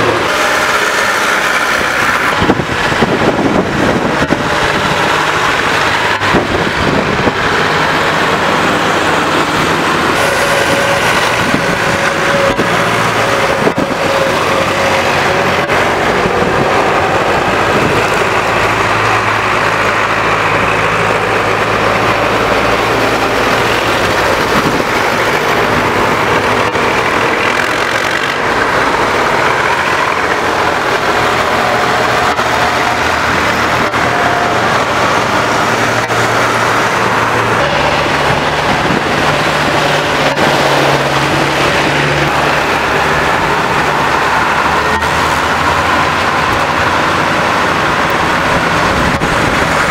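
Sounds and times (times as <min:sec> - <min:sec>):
tractor engines running: 0:00.0 - 0:49.9
tyres swishing on wet road: 0:00.0 - 0:49.9.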